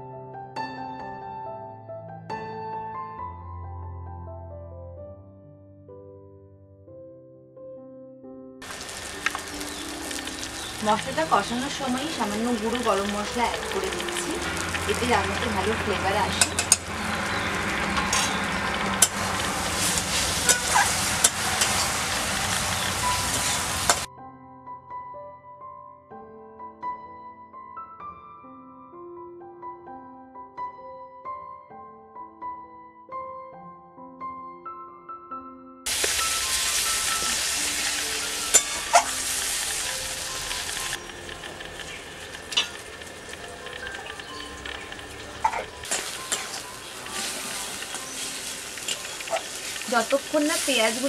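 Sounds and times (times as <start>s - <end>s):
soft piano music: 0.0s - 51.0s
masala sizzling in hot oil: 8.6s - 24.1s, 35.9s - 51.0s
metal spatula scraping pan: 16.4s - 22.0s, 38.5s - 39.6s, 45.4s - 51.0s.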